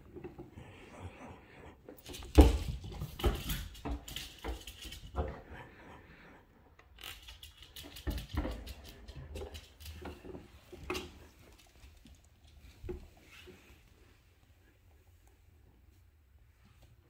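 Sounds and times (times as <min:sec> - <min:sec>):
dog claws clicking on floor: 0:02.0 - 0:05.4, 0:06.9 - 0:13.0.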